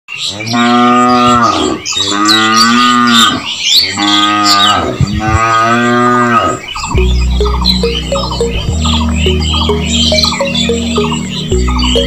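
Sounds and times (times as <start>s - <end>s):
cattle mooing: 0.5s - 6.6s.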